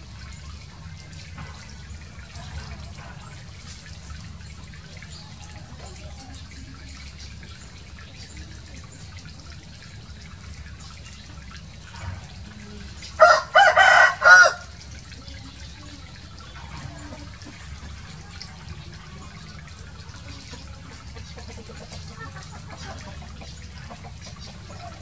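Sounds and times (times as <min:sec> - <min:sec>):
running water: 0:00.0 - 0:25.0
rooster crowing: 0:13.2 - 0:14.8.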